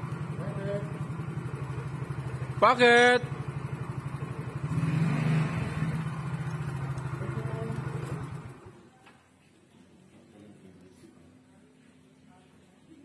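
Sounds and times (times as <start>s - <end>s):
motor scooter engine idling: 0.0s - 8.9s.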